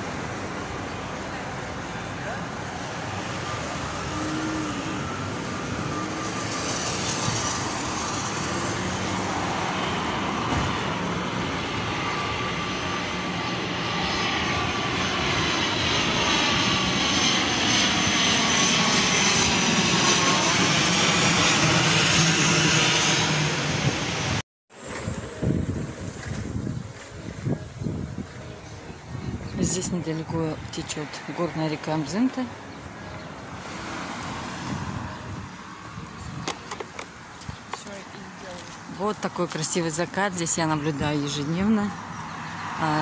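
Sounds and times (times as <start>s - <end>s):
high whine: 0.0s - 30.0s
airplane engine overhead: 0.0s - 43.0s.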